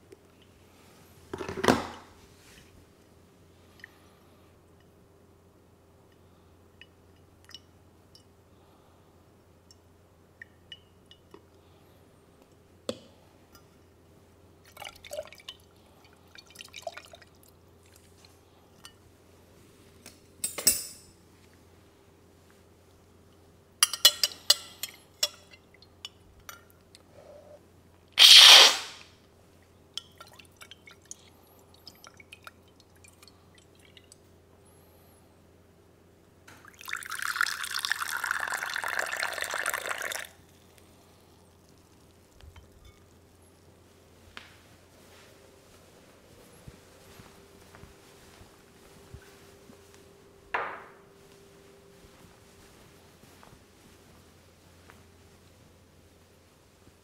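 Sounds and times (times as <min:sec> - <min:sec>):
faint water drips: 0:14.6 - 0:19.0, 0:29.6 - 0:34.4
ceramic and glass clinking: 0:23.8 - 0:26.7.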